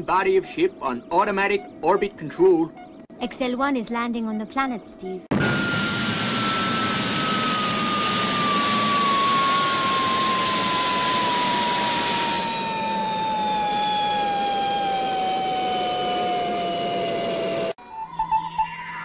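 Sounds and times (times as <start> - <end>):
whine falling in pitch: 5.3 - 19.0.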